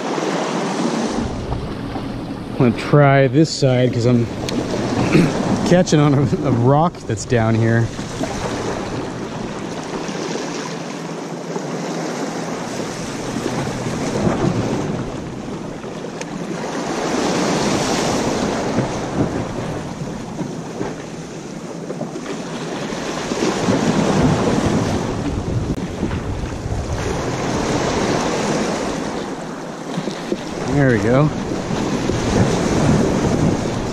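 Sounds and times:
ocean waves washing against rocks: 0.0s - 33.9s
wind noise on microphone: 12.6s - 15.7s, 23.3s - 29.2s, 30.3s - 33.9s.

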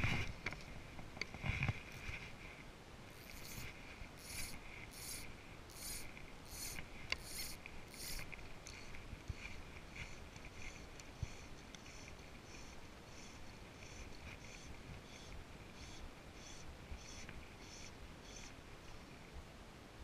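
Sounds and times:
fishing line rasping through guides: 1.8s - 2.4s, 3.1s - 18.6s.

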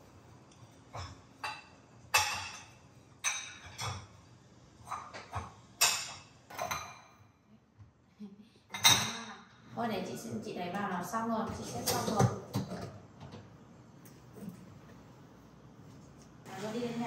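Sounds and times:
dishes clinking: 0.9s - 4.2s, 4.8s - 7.4s, 8.7s - 9.5s.

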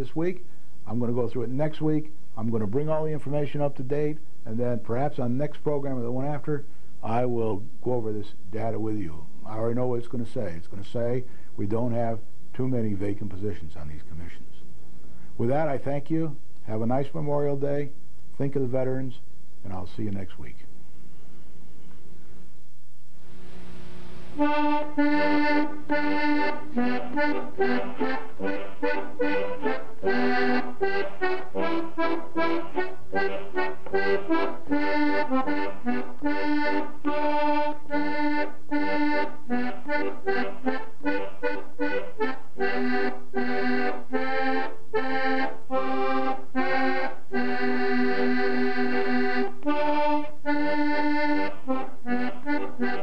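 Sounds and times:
accordion playing: 0.0s - 0.2s, 24.0s - 53.0s.

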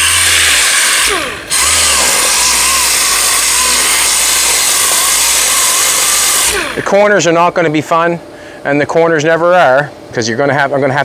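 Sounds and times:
orbital sander grinding filler: 0.0s - 7.2s.

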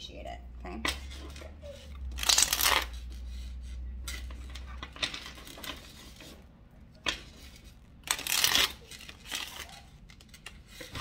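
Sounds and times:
cards riffling: 0.9s - 3.5s, 7.0s - 11.0s
cards rustling: 0.9s - 11.0s.

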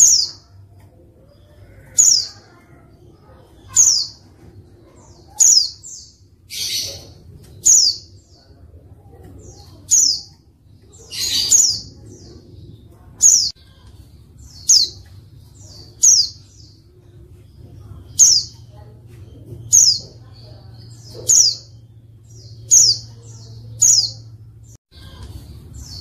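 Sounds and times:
harsh bird calls: 0.0s - 26.0s.

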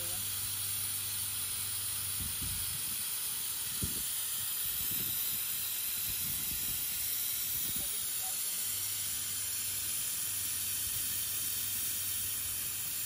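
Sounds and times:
refrigerant gas hissing: 0.0s - 13.0s.

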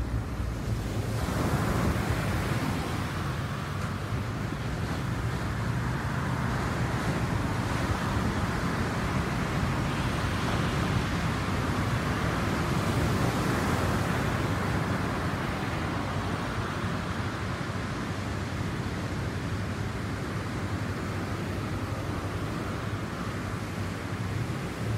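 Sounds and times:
surf washing on shore: 0.0s - 24.9s.

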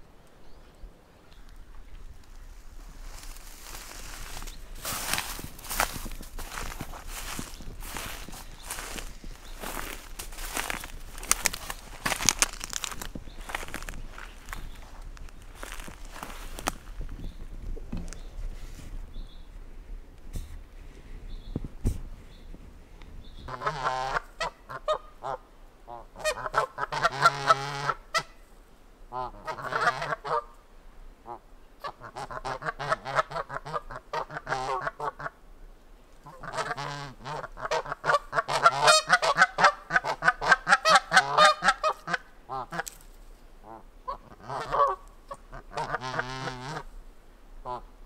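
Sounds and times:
geese honking: 3.0s - 14.9s, 23.5s - 28.4s, 29.1s - 30.5s, 31.3s - 35.4s, 36.2s - 42.9s, 43.6s - 46.9s.

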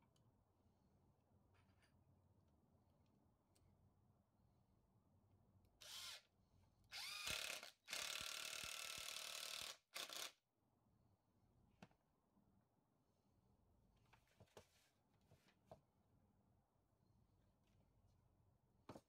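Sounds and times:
impact driver driving screw into wood: 7.0s - 10.4s.

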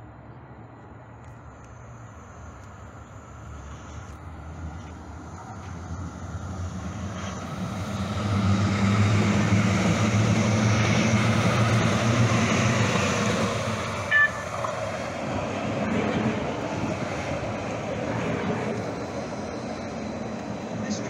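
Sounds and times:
light-rail train passing: 0.0s - 21.0s
brief high tone: 14.1s - 14.6s.

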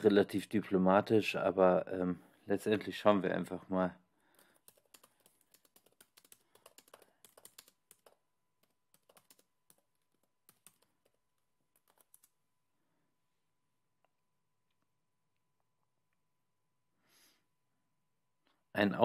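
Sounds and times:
typing on a keyboard: 4.4s - 12.4s.

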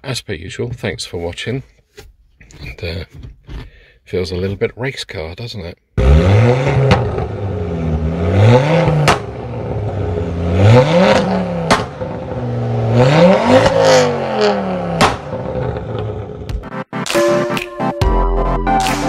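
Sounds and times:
car engine revving: 6.0s - 16.6s.

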